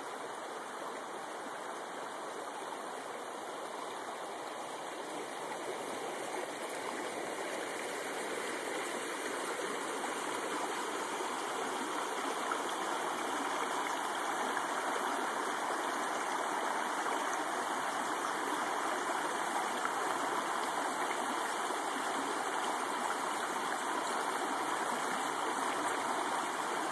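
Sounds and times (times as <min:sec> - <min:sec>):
creek rushing over stones: 0:00.0 - 0:26.9.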